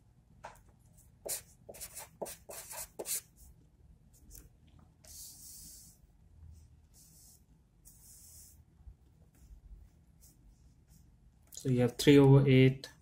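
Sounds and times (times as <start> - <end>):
marker scratching on paper: 1.2 - 3.4, 5.1 - 6.0, 6.9 - 8.6, 9.3 - 11.1.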